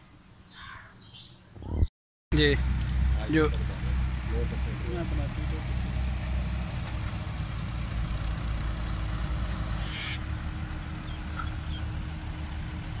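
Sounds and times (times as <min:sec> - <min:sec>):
wind rumbling on microphone: 0:01.6 - 0:01.9
steady mechanical drone: 0:02.3 - 0:13.0.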